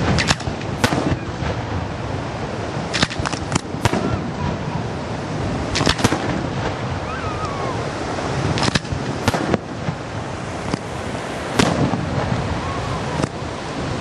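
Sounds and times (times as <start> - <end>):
firework shells bursting: 0.0 - 1.9, 2.8 - 4.6, 5.6 - 6.9, 8.4 - 12.5
continuous fireworks rumble: 0.0 - 14.0.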